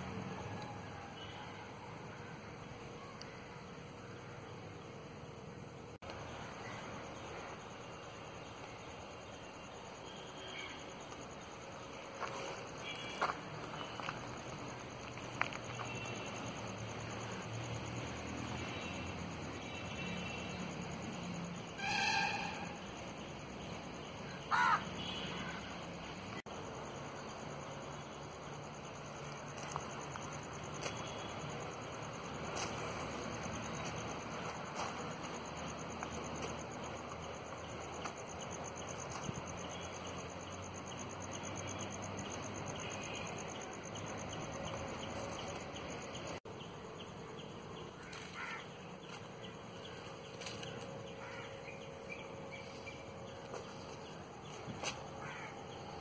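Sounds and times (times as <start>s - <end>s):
open-air background noise: 0.0s - 56.0s
crow cawing: 24.4s - 25.6s, 48.0s - 48.7s, 51.2s - 51.6s, 55.2s - 55.6s.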